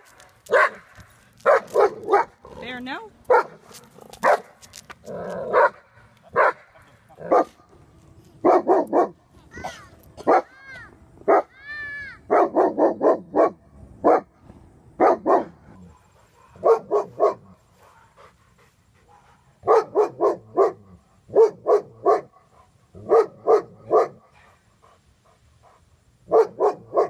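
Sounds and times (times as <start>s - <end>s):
dog barking: 0.5s - 0.8s, 1.5s - 2.4s, 3.3s - 3.6s, 4.2s - 4.5s, 5.4s - 7.6s, 8.4s - 9.2s, 12.3s - 14.3s, 15.0s - 18.2s, 19.1s - 22.3s, 23.0s - 24.6s, 26.3s - 27.0s.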